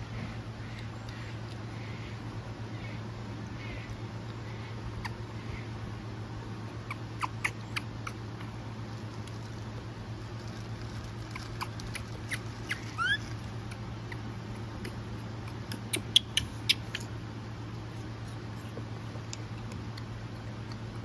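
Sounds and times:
steady low hum: 0:00.0 - 0:21.0
monkey squeaks: 0:06.8 - 0:08.5, 0:11.3 - 0:17.1.

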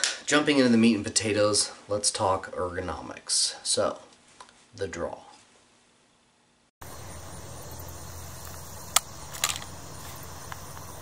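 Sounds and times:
outdoor background noise: 0:00.0 - 0:11.0
pistol holster clicks: 0:08.9 - 0:09.7.

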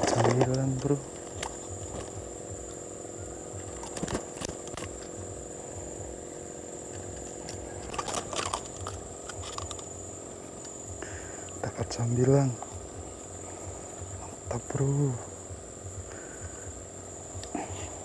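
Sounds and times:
clicks and rattles of fish grip: 0:00.0 - 0:02.2, 0:03.7 - 0:05.1, 0:06.9 - 0:09.9
high-pitched insect drone: 0:00.0 - 0:18.0
low steady hum: 0:00.0 - 0:18.0.

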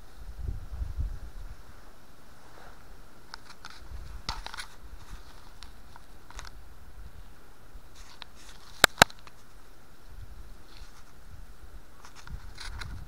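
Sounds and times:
dry twigs and leaves crackling: 0:02.3 - 0:11.3, 0:11.9 - 0:13.0
twigs snapping: 0:08.0 - 0:09.4.

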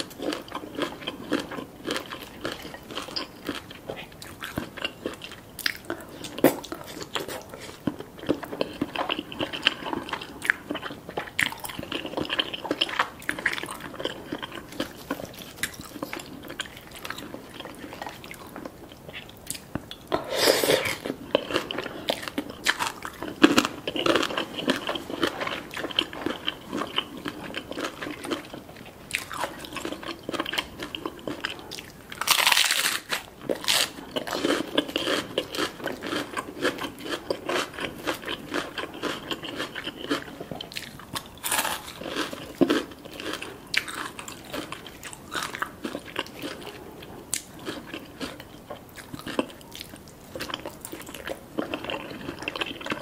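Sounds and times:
wet chewing: 0:00.0 - 0:53.0
crunchy bites: 0:32.2 - 0:46.6.

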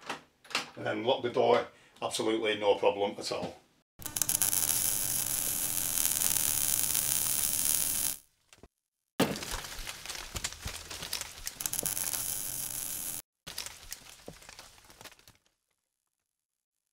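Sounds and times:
dense crackling hiss: 0:04.0 - 0:08.2, 0:11.6 - 0:13.2.

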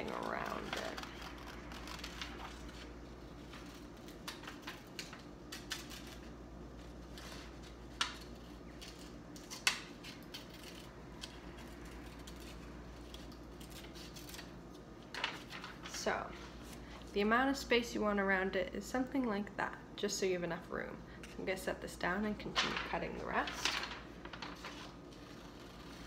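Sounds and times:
scissors cutting paper: 0:00.0 - 0:14.5, 0:24.6 - 0:26.0.

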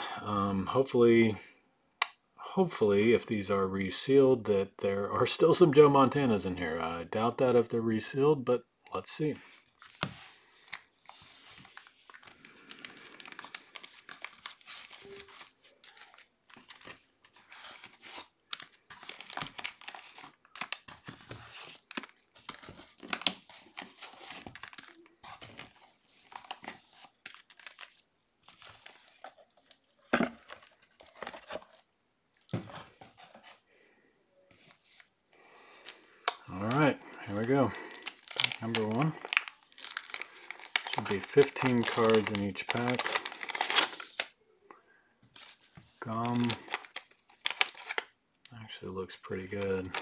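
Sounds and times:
wax-paper packs crinkling: 0:09.2 - 0:33.6, 0:34.5 - 0:44.4, 0:45.3 - 0:48.6, 0:49.2 - 0:50.0.

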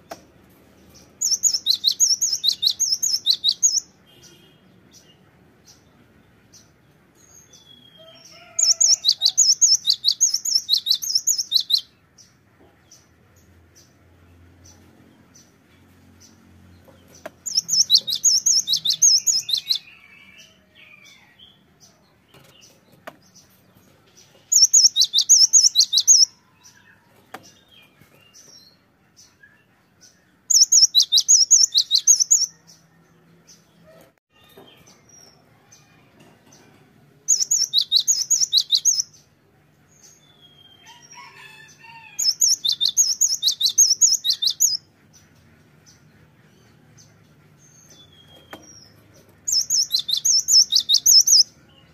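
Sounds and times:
bird singing whistled notes: 0:01.2 - 0:04.3, 0:08.6 - 0:11.9, 0:17.5 - 0:20.0, 0:24.6 - 0:26.3, 0:30.5 - 0:32.7, 0:37.3 - 0:39.1, 0:42.2 - 0:44.8, 0:49.5 - 0:51.5.

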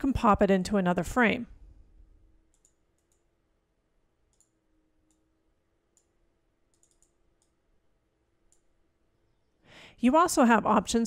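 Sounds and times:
low steady hum: 0:00.0 - 0:11.0
computer mouse clicks: 0:02.5 - 0:03.3, 0:04.3 - 0:05.2, 0:05.9 - 0:07.6, 0:08.5 - 0:08.7.

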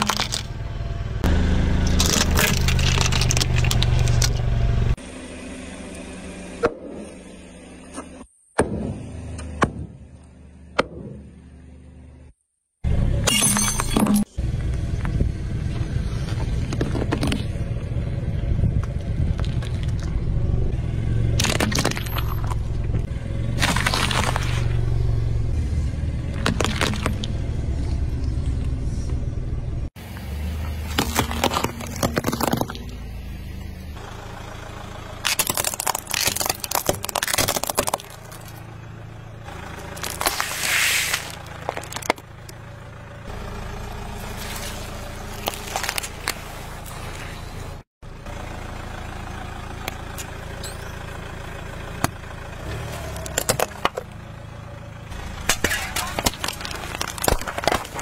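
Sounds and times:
objects crunching under car tyre: 0:00.0 - 0:05.0, 0:13.3 - 0:18.0, 0:18.6 - 0:20.5, 0:21.3 - 0:25.0, 0:25.6 - 0:29.1, 0:30.0 - 0:33.7, 0:35.2 - 0:38.7, 0:39.4 - 0:42.6, 0:44.0 - 0:47.9, 0:52.0 - 0:54.2, 0:55.3 - 0:58.0
low rumble of car: 0:00.0 - 0:58.0.

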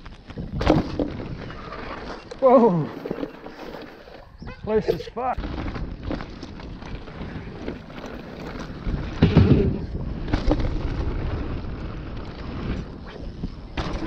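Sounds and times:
bike tyres rolling over dirt: 0:00.0 - 0:14.0
wind buffeting microphone: 0:04.2 - 0:14.0.

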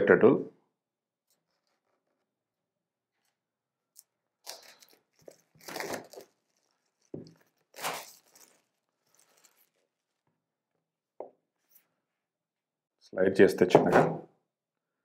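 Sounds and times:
plastic wrap crinkling: 0:01.4 - 0:02.3, 0:04.0 - 0:10.3.

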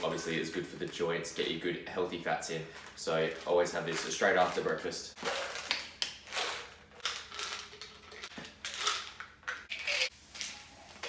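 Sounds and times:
tablets rattling in bottle: 0:02.7 - 0:10.1.

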